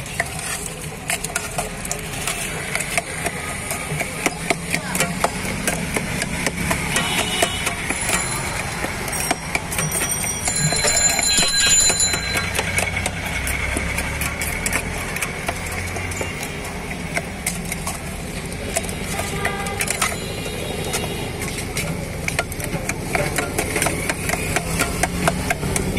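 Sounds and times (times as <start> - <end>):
spoon scraping steel pot: 0.1 - 21.4
high ringing: 7.9 - 13.1.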